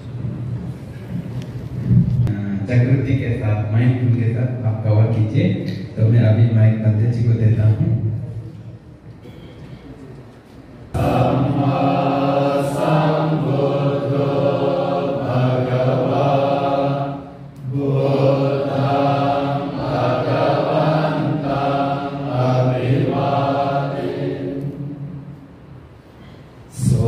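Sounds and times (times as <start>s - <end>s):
monks chanting: 10.9s - 25.2s, 26.7s - 27.0s.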